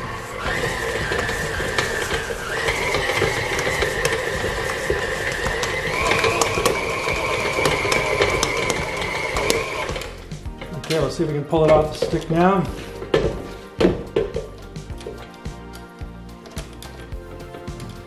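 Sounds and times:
stand mixer motor whining: 0:00.0 - 0:10.3
dough knocking in steel bowl: 0:00.4 - 0:10.1.

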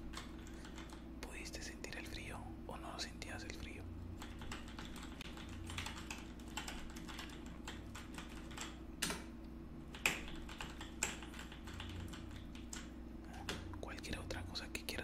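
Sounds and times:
hard keystrokes: 0:00.1 - 0:01.0, 0:04.2 - 0:09.2, 0:09.9 - 0:12.9
typing on a keyboard: 0:00.1 - 0:01.0, 0:04.2 - 0:09.2, 0:09.9 - 0:12.9.

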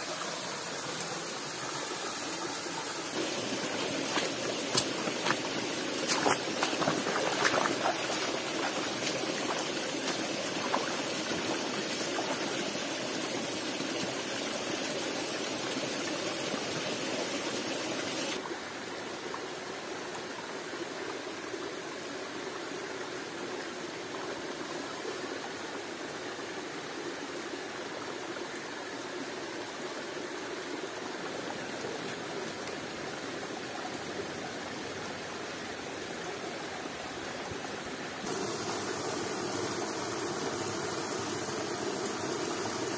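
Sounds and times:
waterfall rushing and splashing: 0:00.0 - 0:19.0, 0:32.1 - 0:42.9.

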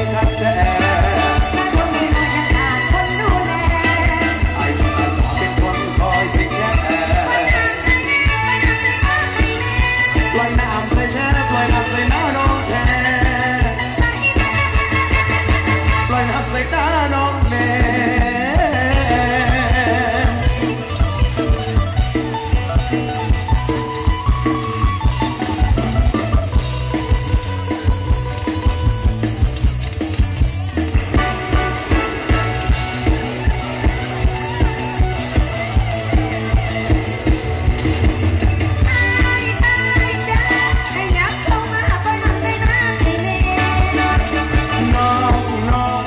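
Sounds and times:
heavy drum beat: 0:00.0 - 0:46.0
live band music through loudspeakers: 0:00.0 - 0:46.0.

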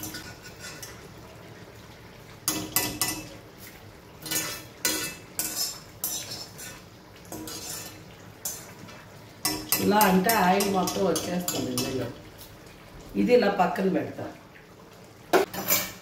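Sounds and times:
metal strainer clinking and scraping: 0:00.0 - 0:01.0, 0:04.2 - 0:08.7.

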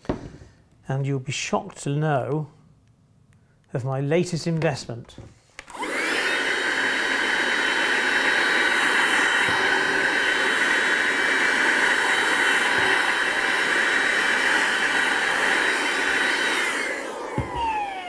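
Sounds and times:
handheld vacuum cleaner whine: 0:05.6 - 0:18.0.

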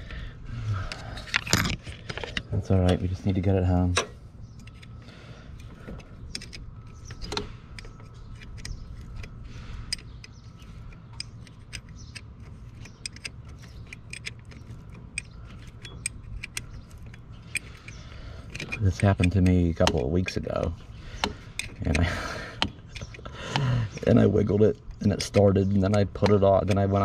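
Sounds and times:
wrench clicking on bolt: 0:06.3 - 0:09.3, 0:09.9 - 0:24.2, 0:25.0 - 0:27.0.

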